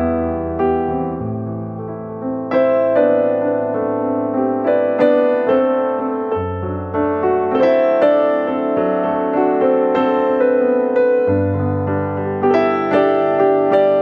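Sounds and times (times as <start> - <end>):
electric piano melody: 0.0 - 14.0.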